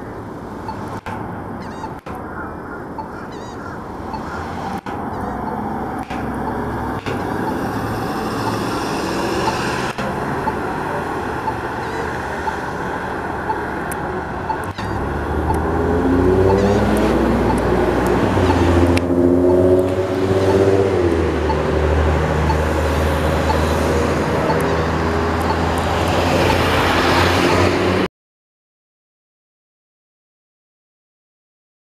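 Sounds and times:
road traffic noise: 0.0s - 28.1s
heavy vehicle engine revving: 3.9s - 28.1s.

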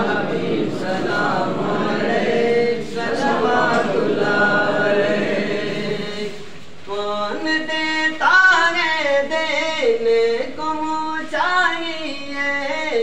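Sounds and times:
voices chanting in unison: 0.0s - 6.5s.

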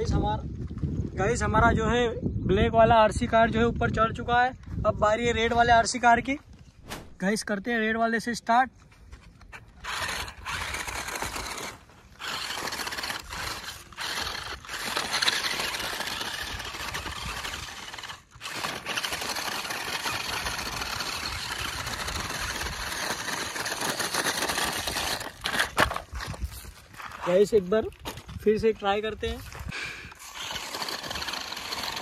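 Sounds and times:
toy car motor whirring: 9.6s - 27.4s, 29.6s - 32.0s.

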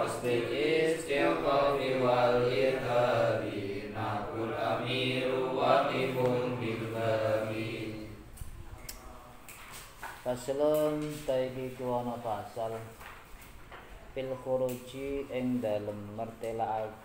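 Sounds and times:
men chanting verse: 0.0s - 8.3s.

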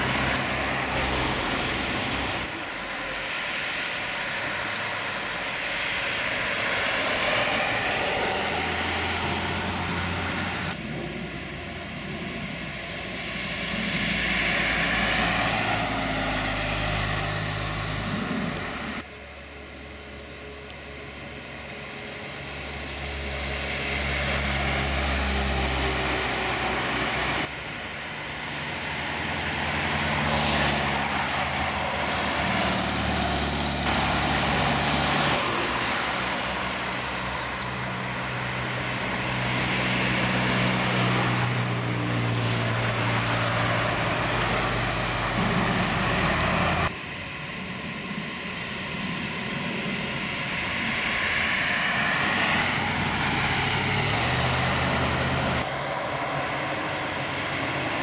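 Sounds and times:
cars driving past: 0.0s - 58.0s.

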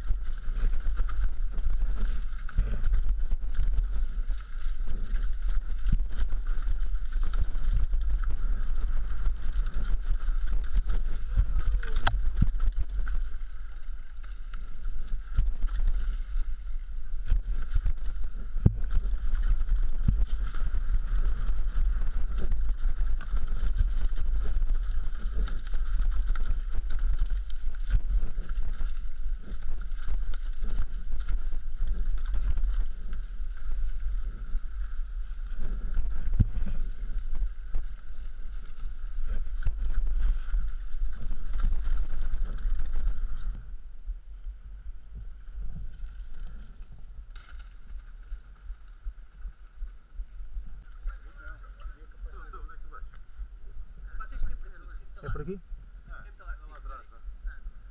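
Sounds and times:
bike rattles and knocks: 0.0s - 16.5s, 17.2s - 34.5s
wind rumble on microphone: 0.0s - 57.9s.

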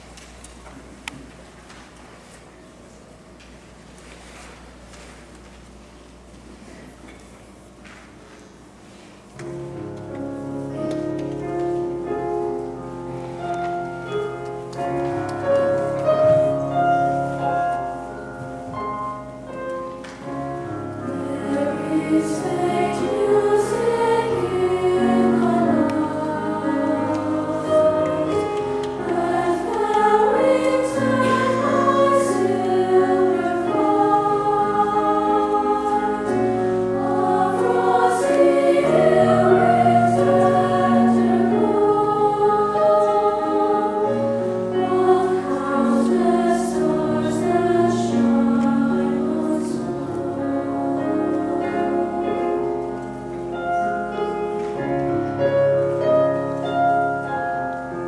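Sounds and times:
children's choir singing: 20.2s - 56.8s.

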